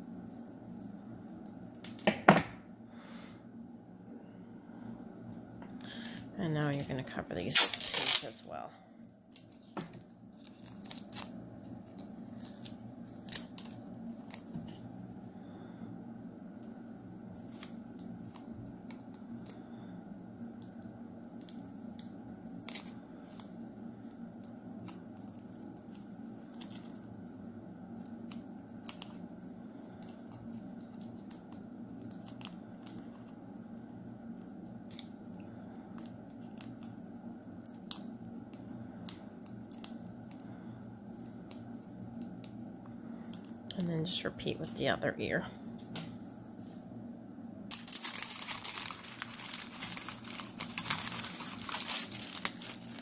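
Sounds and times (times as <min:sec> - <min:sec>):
steady low hum: 0:00.0 - 0:53.0
masking tape crackling: 0:05.9 - 0:08.7, 0:16.4 - 0:46.8, 0:47.7 - 0:53.0.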